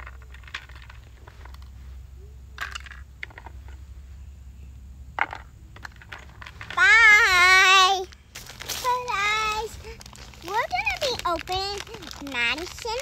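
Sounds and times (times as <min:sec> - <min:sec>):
steady low rumble: 0:00.0 - 0:13.0
short crinkly bursts: 0:06.3 - 0:13.0
plastic pieces clicking and tapping: 0:10.4 - 0:13.0.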